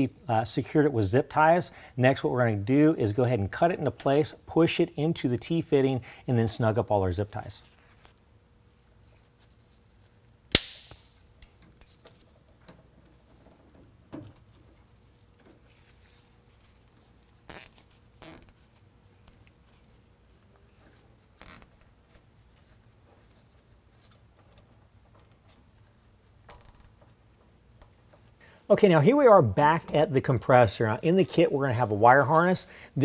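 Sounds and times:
plastic tube snipped: 0:10.5 - 0:11.1
faint clicks and rustles: 0:11.2 - 0:28.5.

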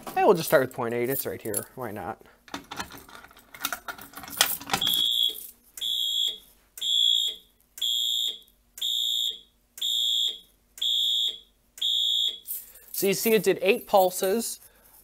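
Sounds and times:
keys rattling in lock: 0:02.6 - 0:05.6
fire alarm horn beeping: 0:04.8 - 0:12.5.

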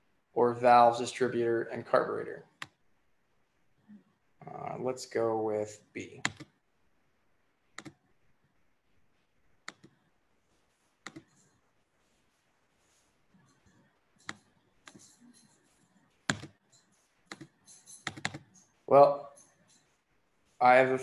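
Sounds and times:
computer mouse clicking: 0:06.2 - 0:06.6, 0:07.7 - 0:08.0, 0:09.6 - 0:10.0, 0:11.0 - 0:11.6, 0:13.4 - 0:18.7.

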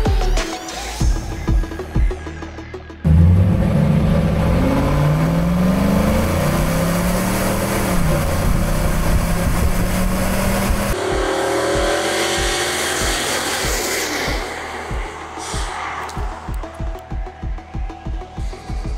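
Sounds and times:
engine exhaust revving: 0:03.0 - 0:16.8.

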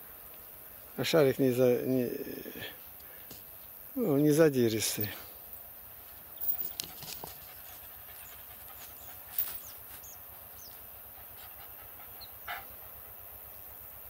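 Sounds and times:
dog panting: 0:06.4 - 0:13.2.

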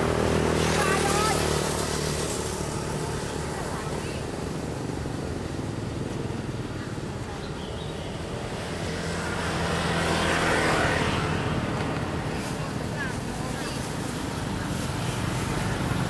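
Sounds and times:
small engine running: 0:00.0 - 0:06.1.

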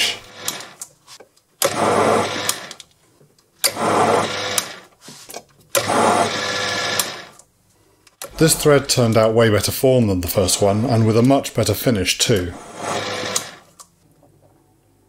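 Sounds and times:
mini lathe motor running: 0:12.6 - 0:13.6.

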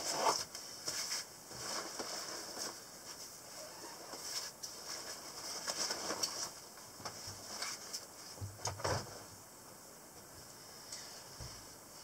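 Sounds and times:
nylon backpack rustling and clicks: 0:03.9 - 0:08.8.

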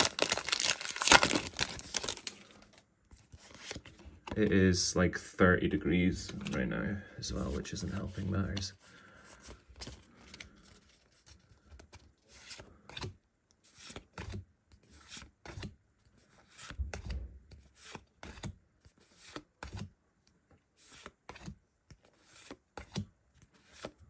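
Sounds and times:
trading cards sliding and flicking: 0:16.3 - 0:19.9, 0:20.8 - 0:24.0.

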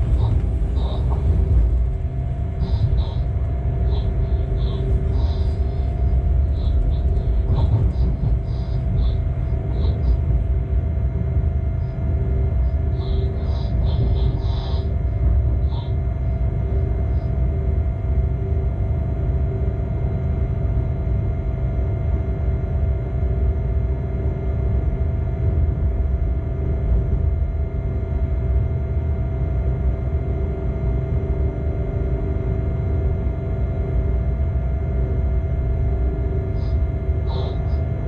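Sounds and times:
locomotive running gear rumble: 0:00.0 - 0:17.3
machinery humming: 0:00.0 - 0:38.0.

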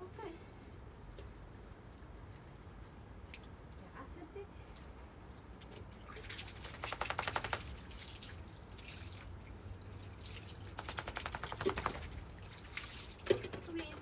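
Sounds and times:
water spattering on paving: 0:04.8 - 0:09.4, 0:10.0 - 0:13.5.

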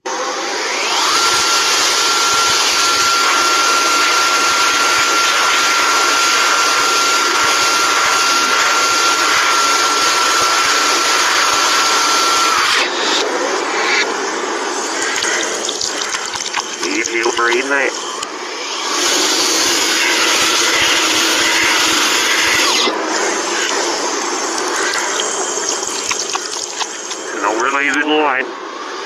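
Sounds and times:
hand dryer rushing air: 0:00.0 - 0:28.0
water running from a tap: 0:15.0 - 0:16.9, 0:23.6 - 0:27.2.

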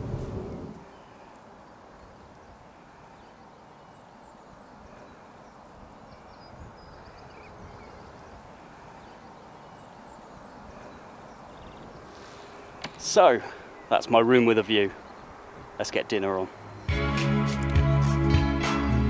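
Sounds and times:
wind on microphone: 0:00.0 - 0:00.9, 0:05.8 - 0:09.1, 0:10.3 - 0:13.0.

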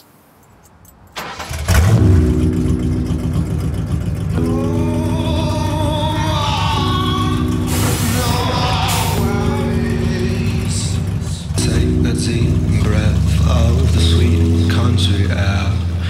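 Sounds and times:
pickup engine starting and running: 0:01.1 - 0:16.0
music with guitar and singing: 0:04.4 - 0:13.4.

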